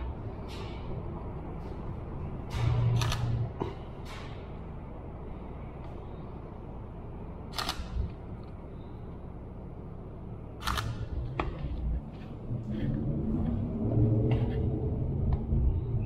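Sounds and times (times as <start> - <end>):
low city rumble: 0.0 - 16.0
camera shutter clicks: 7.5 - 8.0, 10.6 - 11.0.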